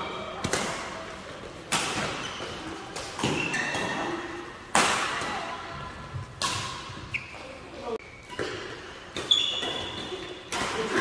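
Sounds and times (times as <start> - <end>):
badminton racket hitting shuttlecock: 6.3 - 7.0.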